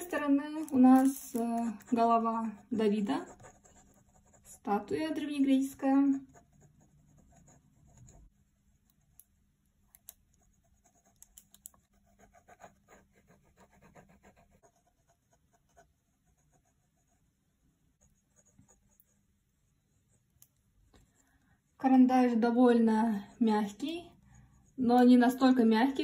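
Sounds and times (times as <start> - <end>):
pencil scratching on paper: 0.0 - 9.2, 10.3 - 17.4, 18.0 - 20.4.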